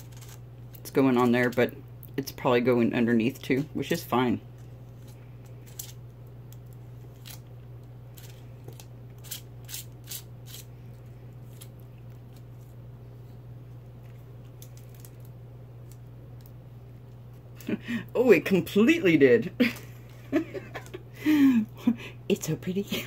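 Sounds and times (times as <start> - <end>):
steady low hum: 0.0 - 23.0
palette knife scraping stencil: 9.2 - 10.7.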